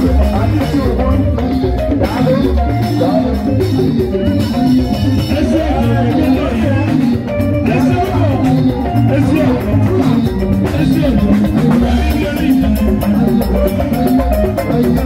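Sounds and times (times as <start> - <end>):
man singing into microphone: 0.0 - 3.8, 5.2 - 13.1
live band playing: 0.0 - 15.0.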